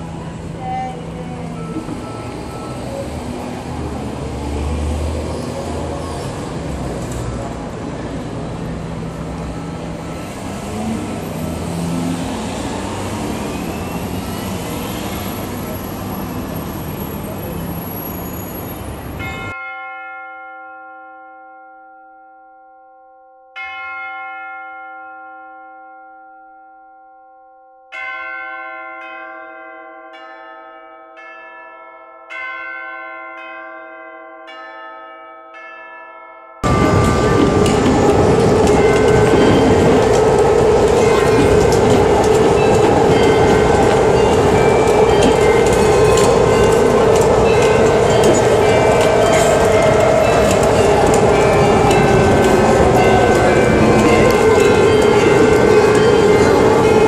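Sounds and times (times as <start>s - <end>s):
train rail rumble: 0.0s - 19.5s, 36.6s - 57.0s
large bells tolling: 19.2s - 27.1s, 27.9s - 57.0s
differently pitched bell: 19.2s - 57.0s.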